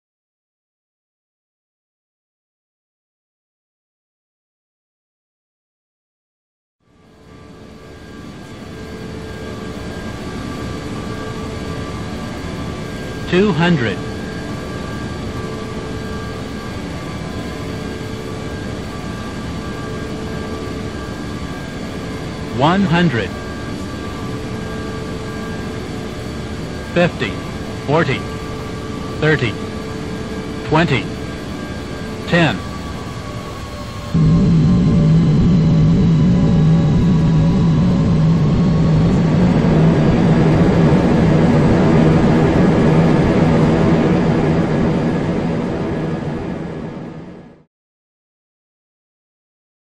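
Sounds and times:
jet airliner engine rush: 7.2 - 47.6
steady whining tones: 7.2 - 47.6
rumble: 32.8 - 47.6.

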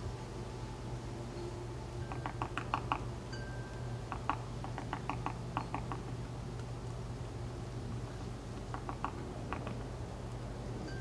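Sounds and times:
woodpecker pecking on wood: 2.1 - 3.1, 4.1 - 6.1, 8.7 - 9.9.

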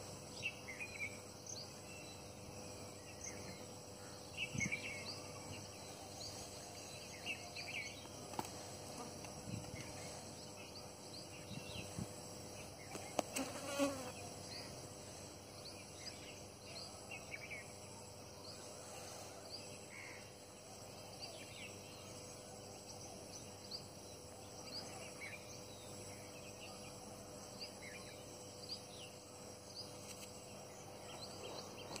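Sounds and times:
insect drone: 0.0 - 32.0.

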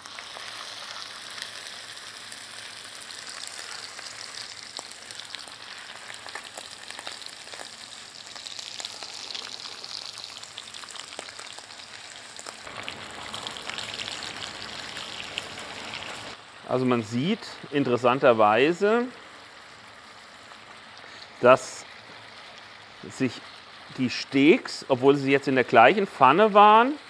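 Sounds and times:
steaks sizzling in a frying pan: 0.0 - 16.4.

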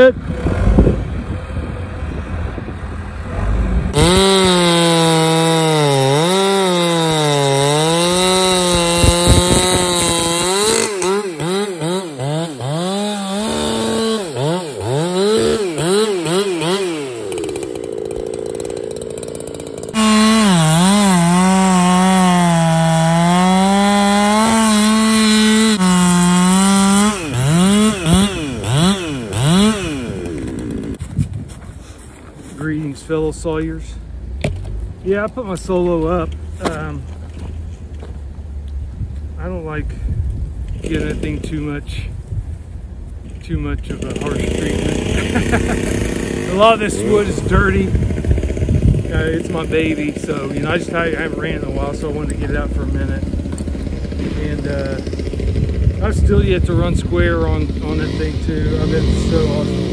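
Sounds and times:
chainsaw revving: 3.2 - 31.0, 40.8 - 42.0, 43.6 - 59.9
chainsaw cutting log: 3.2 - 31.4, 35.6 - 37.6, 40.7 - 42.0, 43.3 - 59.9.

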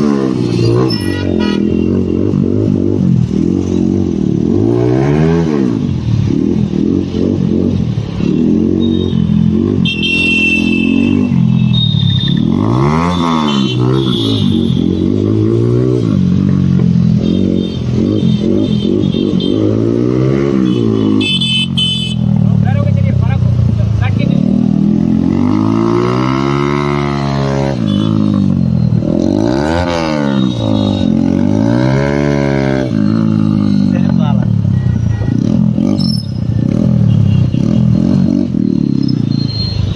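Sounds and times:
motorcycle engine revving: 0.0 - 39.9.

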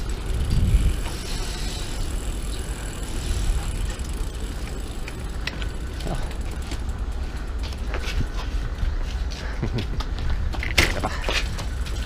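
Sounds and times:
bicycle rolling on concrete: 0.0 - 12.0.

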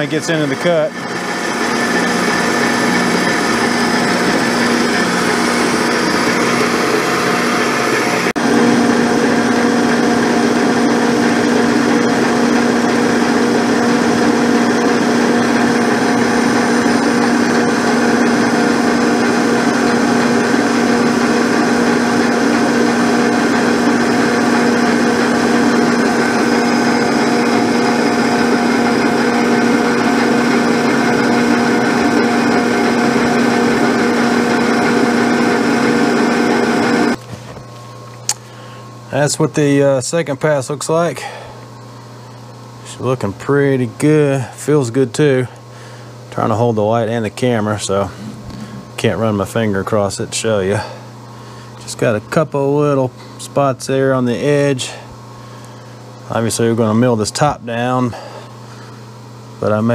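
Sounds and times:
milling machine cutting metal: 0.0 - 37.2, 46.4 - 51.2.

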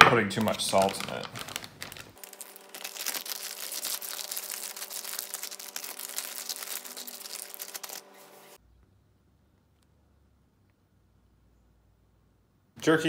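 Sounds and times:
plastic bag crinkling: 0.3 - 8.6.

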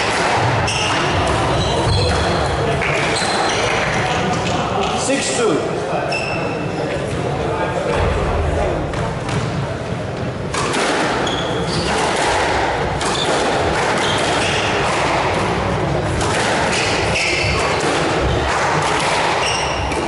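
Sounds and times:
shoes squeaking on wooden floor: 0.7 - 3.9, 11.2 - 11.9
squash ball smacking: 8.0 - 20.0.

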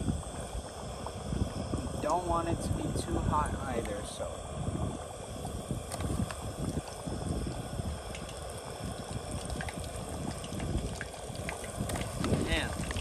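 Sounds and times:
food deep-frying in oil: 0.0 - 13.0.

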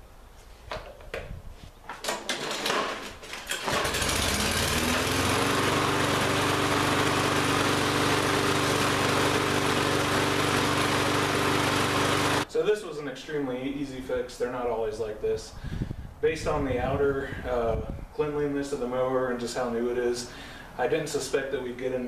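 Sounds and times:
starter cord rattle: 1.9 - 4.7
mower engine running: 2.2 - 12.5.

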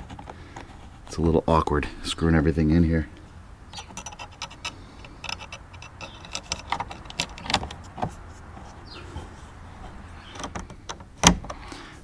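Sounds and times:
plastic clicks and scrapes: 0.0 - 1.2, 3.7 - 11.6.

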